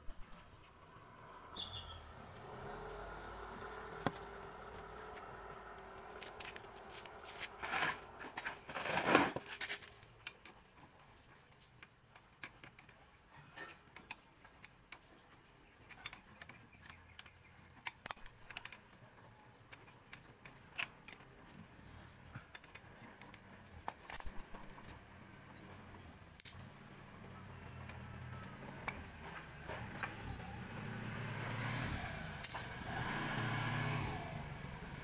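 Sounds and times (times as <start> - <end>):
faint steady hum: 0.0 - 35.0
metal wrench clicking on bolts: 15.9 - 18.8, 26.4 - 26.7, 32.4 - 32.7.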